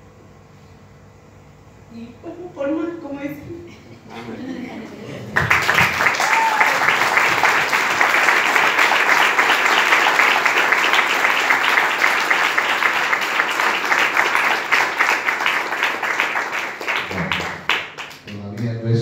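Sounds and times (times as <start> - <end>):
crowd applauding: 5.2 - 19.0.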